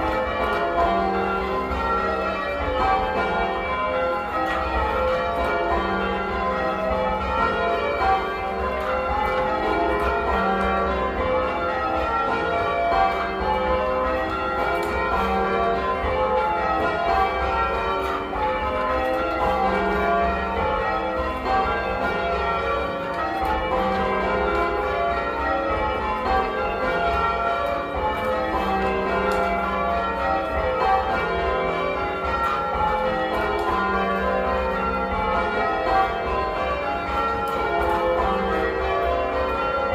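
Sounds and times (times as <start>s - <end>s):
church bells change ringing: 0.0s - 39.9s.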